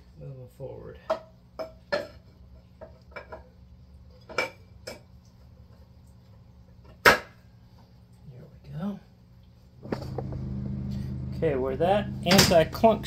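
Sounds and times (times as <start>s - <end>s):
sharp metallic clack: 12.2s - 13.0s.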